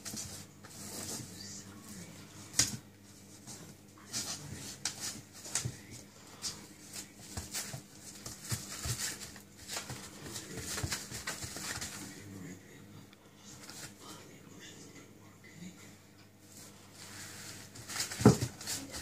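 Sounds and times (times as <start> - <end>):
dog paws scrabbling on paper: 0.0 - 12.2, 16.5 - 19.0.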